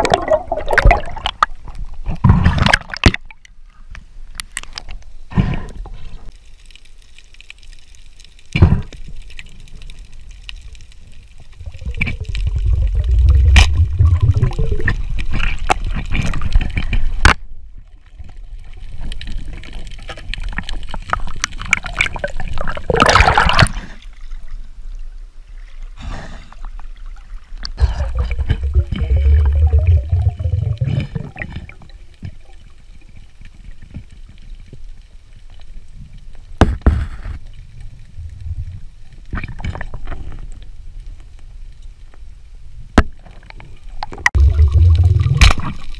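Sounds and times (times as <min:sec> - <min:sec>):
water rushing and gurgling: 0:00.0 - 0:03.2, 0:10.6 - 0:17.3, 0:27.5 - 0:33.2, 0:44.2 - 0:45.9.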